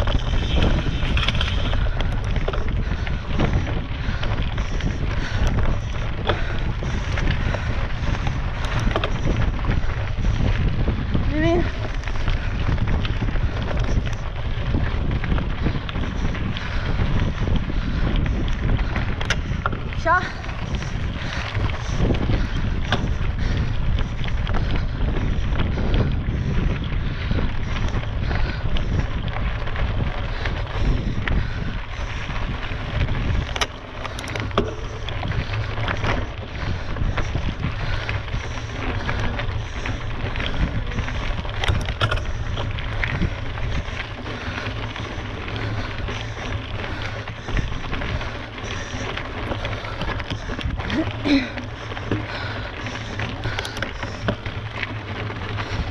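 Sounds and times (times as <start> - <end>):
bike clicks and rattles: 0.0 - 55.9
wind buffeting microphone: 0.0 - 55.9.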